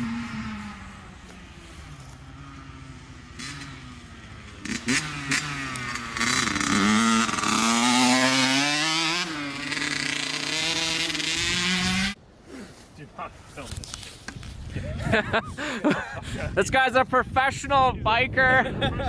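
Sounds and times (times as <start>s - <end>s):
dirt bike engine revving: 0.0s - 12.2s.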